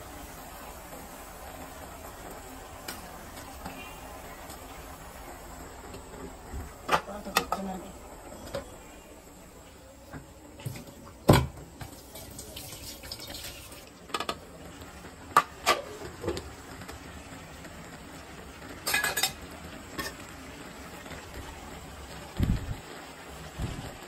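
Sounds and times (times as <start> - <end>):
steel cookware clanking: 18.8 - 20.2.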